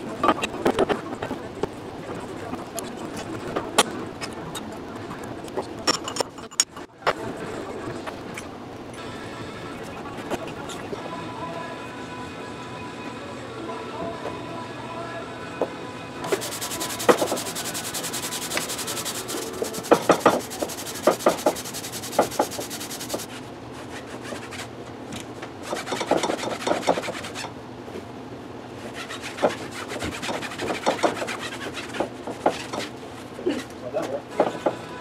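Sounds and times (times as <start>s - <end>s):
cloth scrubbing steel bar: 16.3s - 24.7s.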